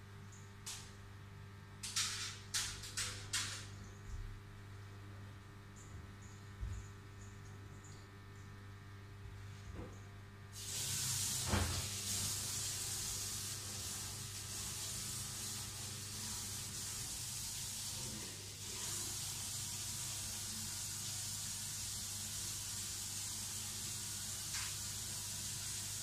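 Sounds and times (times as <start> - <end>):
tap water running into sink: 10.6 - 26.0.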